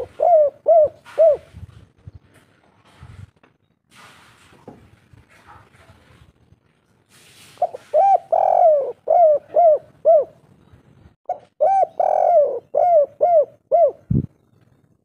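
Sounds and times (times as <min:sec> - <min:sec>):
dove cooing: 0:00.0 - 0:01.6, 0:07.6 - 0:10.4, 0:11.3 - 0:14.4.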